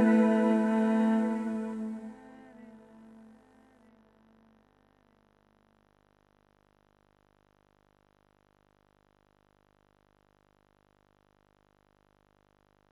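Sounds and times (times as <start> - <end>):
background music: 0.0 - 2.4
faint steady hum and hiss: 0.0 - 12.9.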